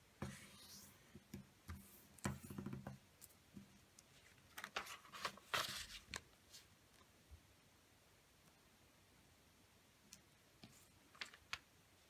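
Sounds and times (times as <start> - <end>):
paper rustling and crackling: 4.2 - 6.7
paper tapping and crinkling: 4.5 - 6.3, 10.6 - 11.7.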